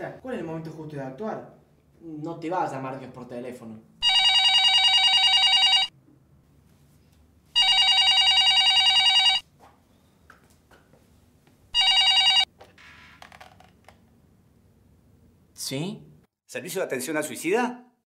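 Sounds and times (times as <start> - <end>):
telephone trilling ring: 4.0 - 5.9, 7.6 - 9.4, 11.8 - 12.5.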